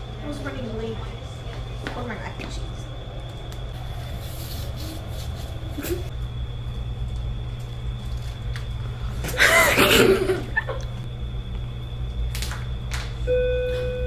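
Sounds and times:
low hum: 0:00.0 - 0:14.0
girl laughing: 0:05.4 - 0:06.1, 0:09.3 - 0:11.0.

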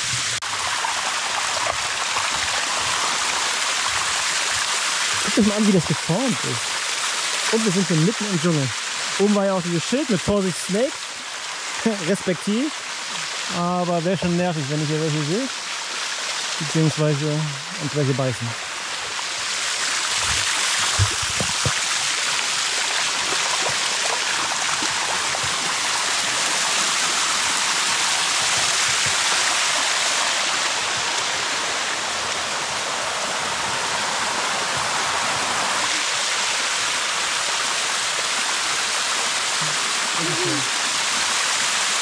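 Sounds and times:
water rushing down cascade: 0:00.0 - 0:42.0.

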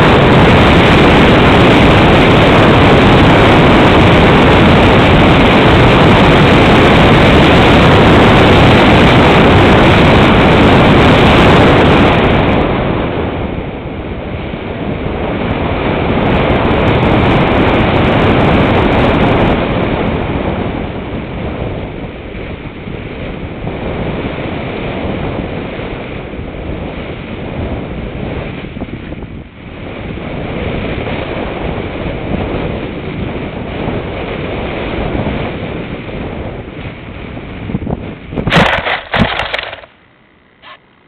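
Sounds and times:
wind rushing on microphone: 0:00.0 - 0:41.0
steady high whine: 0:37.4 - 0:41.0.

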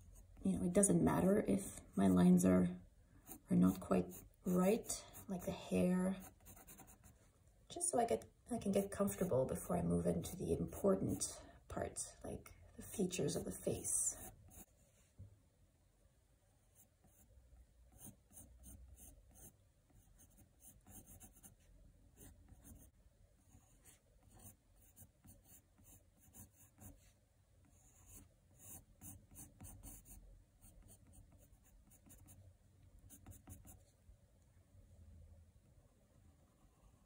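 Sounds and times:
pencil scratching on paper: 0:03.2 - 0:07.2, 0:08.6 - 0:11.4, 0:12.8 - 0:14.7, 0:17.9 - 0:32.4, 0:33.0 - 0:33.9.

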